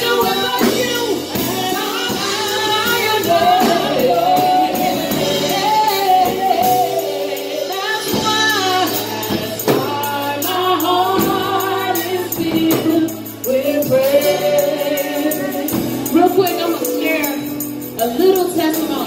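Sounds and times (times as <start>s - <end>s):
drum kit with cymbals: 0.0s - 19.0s
electric keyboard: 0.0s - 19.0s
woman singing backing: 0.0s - 19.0s
woman singing lead: 0.0s - 19.0s.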